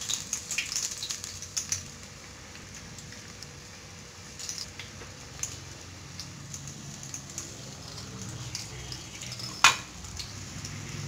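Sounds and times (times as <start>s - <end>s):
hot oil sizzling and crackling: 0.0s - 11.0s.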